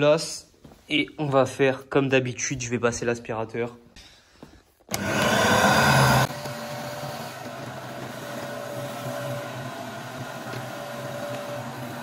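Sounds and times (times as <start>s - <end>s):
vacuum cleaner running: 4.9s - 12.0s.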